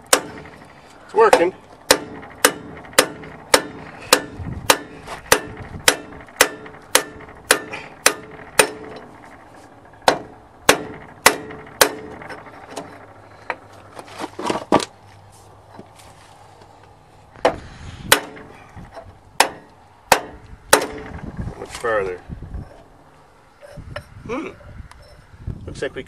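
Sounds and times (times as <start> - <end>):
hammer striking metal: 0.0 - 9.4, 10.0 - 13.0, 17.4 - 18.6, 19.4 - 21.2.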